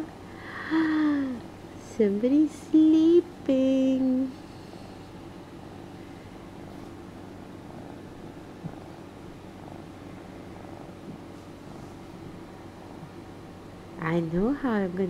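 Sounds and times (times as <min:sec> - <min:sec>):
kitten purring: 0:04.1 - 0:13.9.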